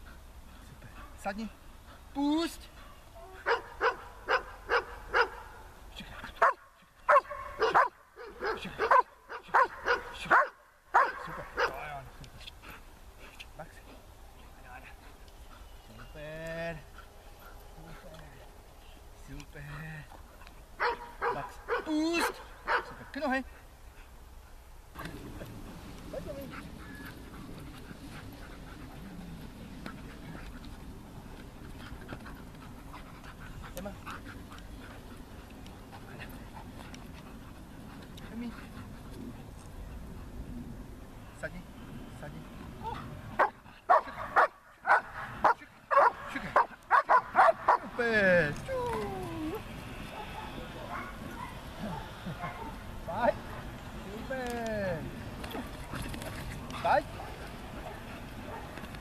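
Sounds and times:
dogs panting: 0.0 - 40.6, 42.5 - 59.0
dog barking sharply: 6.4 - 11.8, 20.8 - 22.9, 43.4 - 47.9
faint rustles and ticks: 11.3 - 20.8, 23.1 - 40.4, 52.2 - 59.0.

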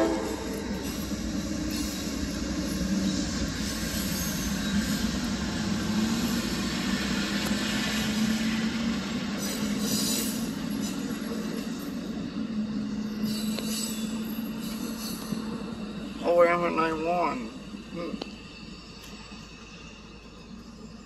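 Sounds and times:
diesel locomotives passing: 0.0 - 21.0
train wheels rumbling on rails: 0.0 - 21.0.

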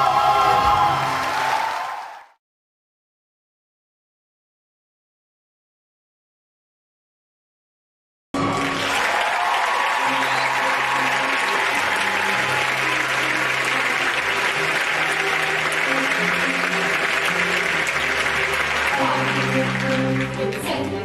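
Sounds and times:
audience applauding: 0.0 - 2.4, 8.4 - 21.0.

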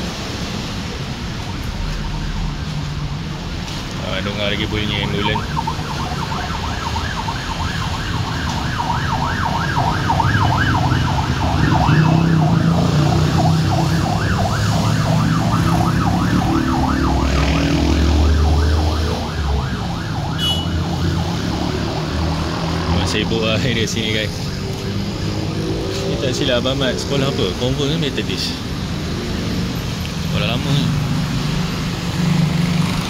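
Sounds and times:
road traffic rumble: 0.0 - 33.0
ambulance siren yelp: 1.4 - 27.7.

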